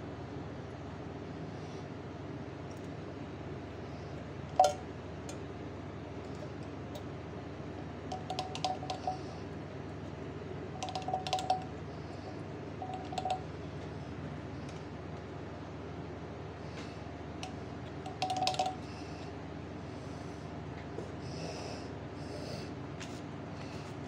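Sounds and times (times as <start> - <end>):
light clinks and taps: 8.1 - 9.2, 10.8 - 11.7, 12.8 - 13.5, 17.4 - 18.8.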